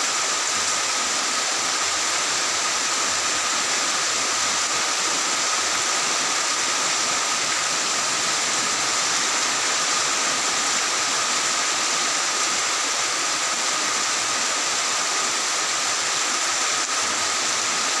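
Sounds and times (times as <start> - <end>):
heavy rain on tiled roofs: 0.0 - 18.0.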